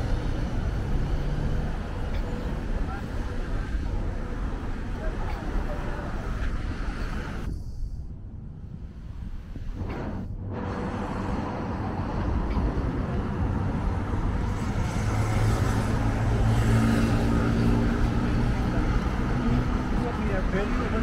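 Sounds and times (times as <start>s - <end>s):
low engine hum: 0.0s - 21.0s
vehicle approaching: 9.8s - 21.0s.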